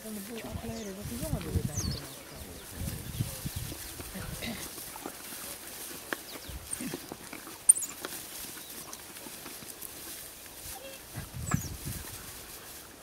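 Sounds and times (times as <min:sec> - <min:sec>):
dogs tearing and chewing meat: 0:04.6 - 0:10.1.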